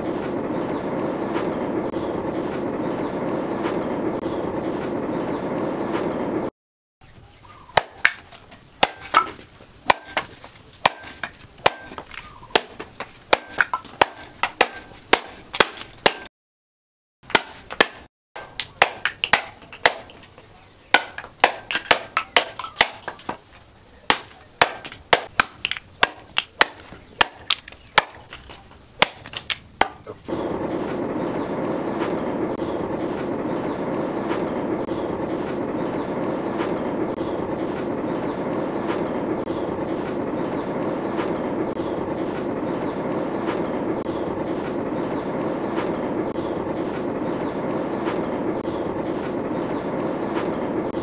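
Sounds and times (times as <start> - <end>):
cleaver chopping bamboo on wood: 7.7 - 16.3, 17.3 - 20.2, 20.9 - 30.2.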